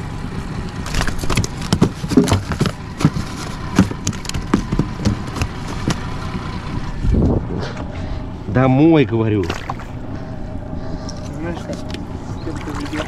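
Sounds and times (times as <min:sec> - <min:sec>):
outboard motor humming: 0:00.0 - 0:13.0
sharp knocks and clatters: 0:00.8 - 0:06.4.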